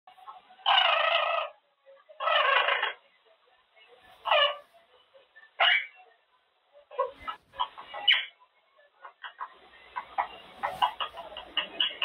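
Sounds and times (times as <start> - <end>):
parrot calling: 0.6 - 1.6, 2.2 - 3.0, 4.2 - 4.6, 5.6 - 6.0.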